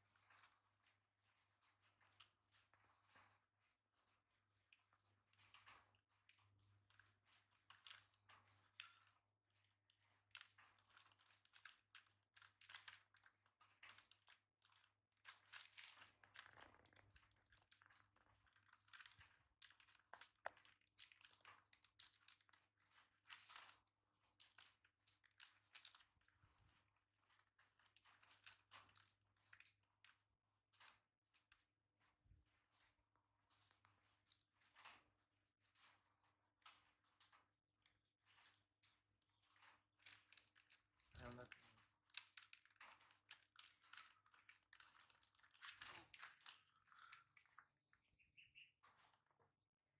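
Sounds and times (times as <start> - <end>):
plastic packet crinkling: 10.3 - 23.8, 24.4 - 26.3, 39.6 - 47.6.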